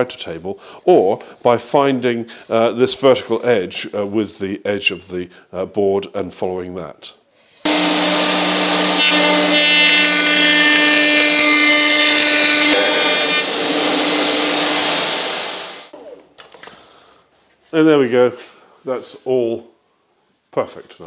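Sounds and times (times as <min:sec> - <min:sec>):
high whine of cutting: 0:07.7 - 0:15.9
router motor running: 0:07.7 - 0:15.9.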